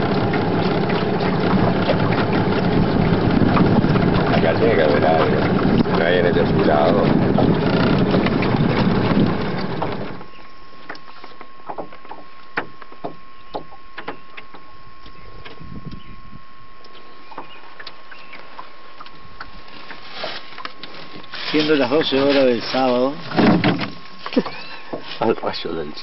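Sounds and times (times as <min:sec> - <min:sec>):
wind rumbling on microphone: 0:00.0 - 0:10.4, 0:14.8 - 0:16.8.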